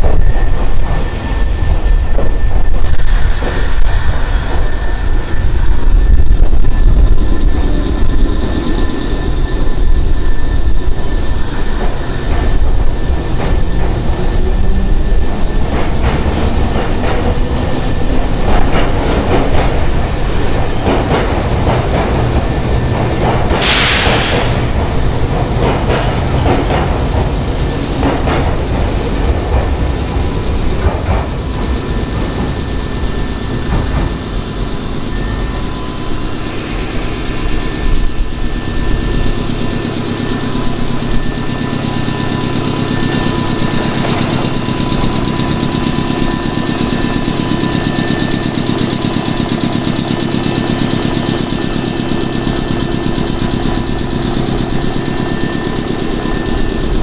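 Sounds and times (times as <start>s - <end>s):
electric train rumbling: 0.0s - 57.0s
air hiss burst: 23.6s - 24.8s.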